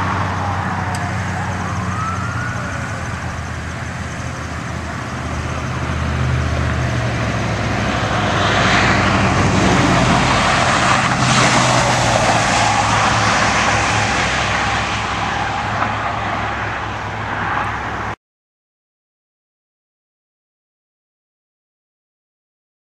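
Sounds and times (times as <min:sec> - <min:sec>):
steady low engine hum: 0:00.0 - 0:18.0
ambulance driving past: 0:00.0 - 0:18.2.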